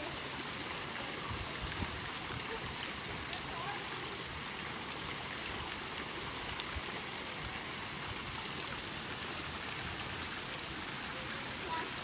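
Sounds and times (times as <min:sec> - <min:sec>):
fountain jets splashing into pool: 0:00.0 - 0:12.0.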